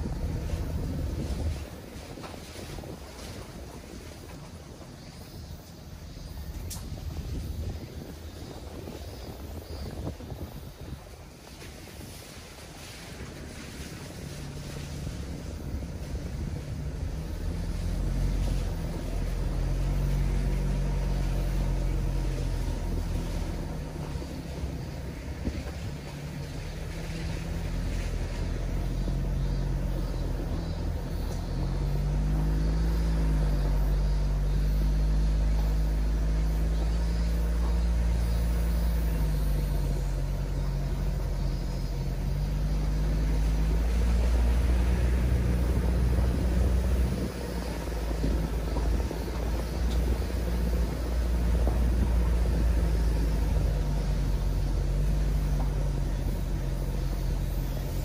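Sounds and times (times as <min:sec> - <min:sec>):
deep road rumble: 0:00.0 - 0:58.0
diesel engine running: 0:00.0 - 0:58.0.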